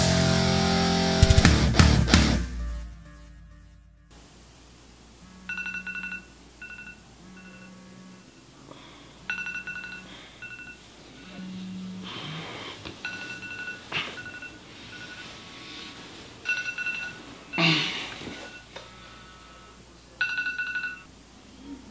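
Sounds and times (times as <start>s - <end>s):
phone vibrating buzz: 2.4s - 4.3s, 5.1s - 15.4s
phone ringtone beeps: 5.4s - 8.2s, 9.3s - 10.9s, 13.0s - 15.4s, 16.4s - 17.6s, 20.2s - 21.1s.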